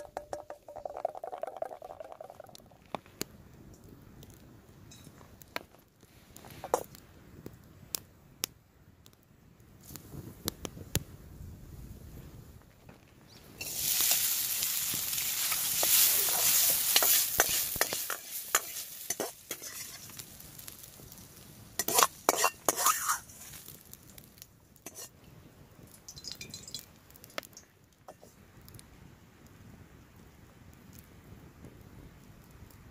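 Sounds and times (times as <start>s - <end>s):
food sizzling in a wok: 13.3s - 24.0s, 24.8s - 25.1s
scrapes and clinks in a pan: 15.4s - 20.2s, 21.8s - 23.6s, 24.9s - 25.1s.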